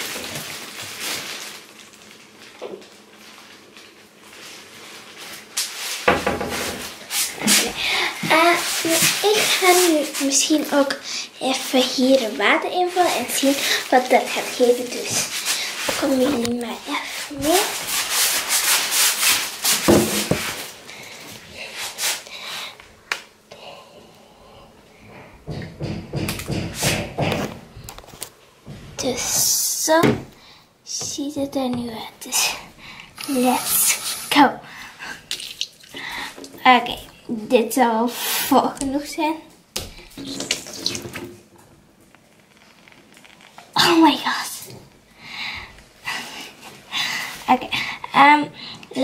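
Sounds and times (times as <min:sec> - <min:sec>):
sharp knocks: 0:25.4 - 0:27.5.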